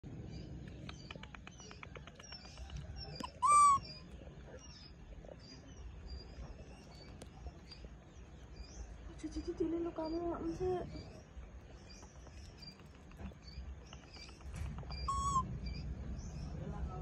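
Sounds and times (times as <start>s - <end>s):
small birds chirping faintly: 0.0s - 17.0s
quick run of clicks: 0.6s - 3.3s
baby monkey high-pitched call: 3.2s - 4.0s, 14.8s - 15.5s.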